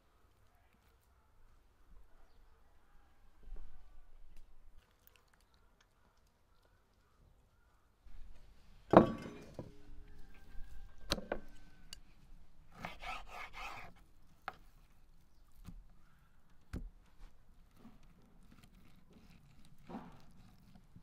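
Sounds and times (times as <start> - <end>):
knife scraping through meat: 12.7 - 14.0.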